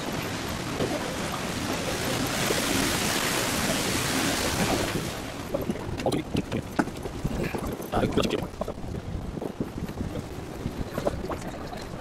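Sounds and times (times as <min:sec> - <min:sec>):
fountain water splashing: 0:00.0 - 0:06.6.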